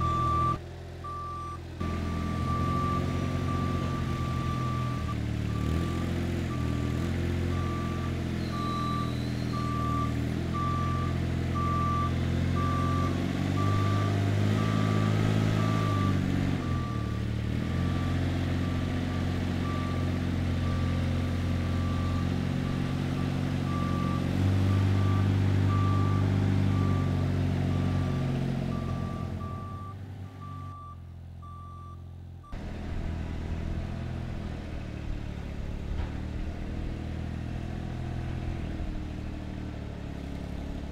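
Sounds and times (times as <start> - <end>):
backup alarm beeping: 0.0 - 6.8, 7.5 - 18.2, 27.7 - 32.6
forklift engine running: 0.0 - 40.9.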